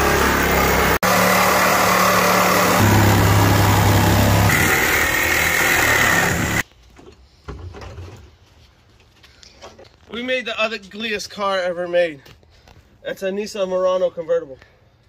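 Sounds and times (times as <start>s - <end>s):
power saw cutting sheet metal: 0.0s - 6.6s.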